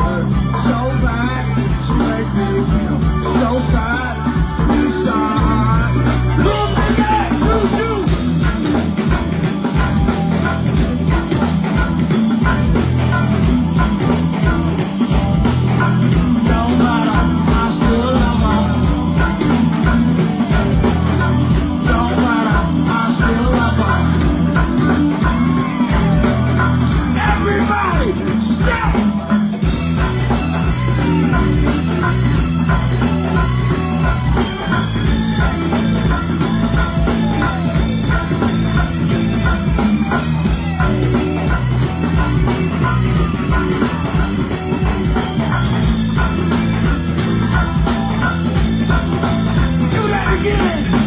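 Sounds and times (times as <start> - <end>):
person singing: 0.0 - 8.2, 10.2 - 29.3, 48.0 - 51.0
live band percussion groove: 0.0 - 51.0.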